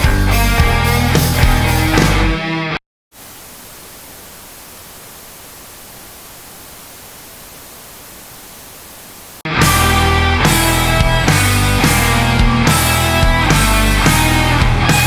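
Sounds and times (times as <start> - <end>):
rock music: 0.0 - 2.8, 9.5 - 15.0
tv static hiss: 3.1 - 9.5.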